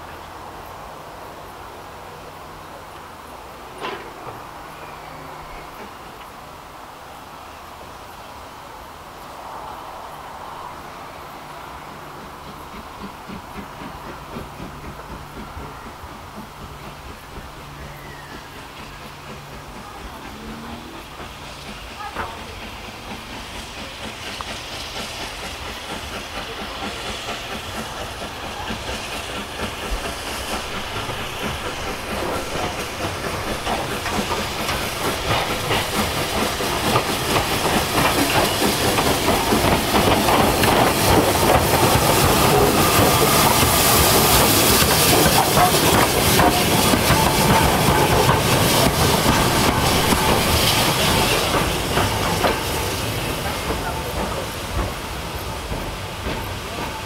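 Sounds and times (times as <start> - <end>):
steam locomotive chuffing: 0.0 - 57.0
train wheel clatter: 3.4 - 6.7, 11.5 - 57.0.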